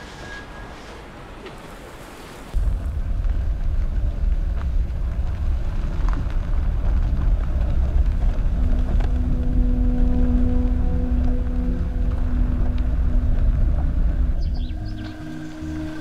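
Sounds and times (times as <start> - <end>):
car engine and road rumble: 0.0 - 16.0
held low musical note: 8.2 - 16.0.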